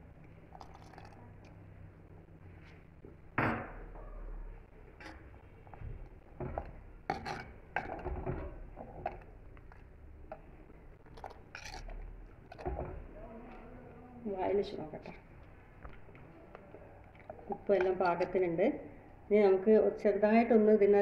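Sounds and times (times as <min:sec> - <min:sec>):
spoon stirring in clay pot: 0:04.9 - 0:13.8, 0:14.6 - 0:18.6.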